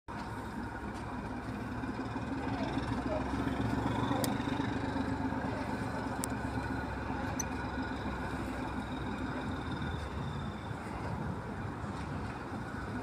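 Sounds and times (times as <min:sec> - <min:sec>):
locomotive engine humming: 0:00.1 - 0:13.0.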